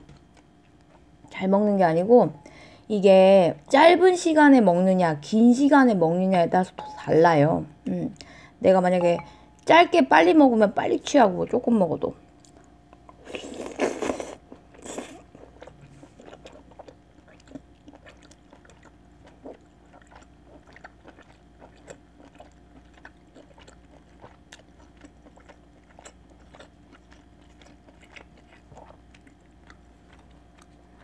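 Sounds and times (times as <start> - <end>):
faint steady hum: 0.0 - 31.0
person chewing wet mouth sounds: 12.4 - 31.0.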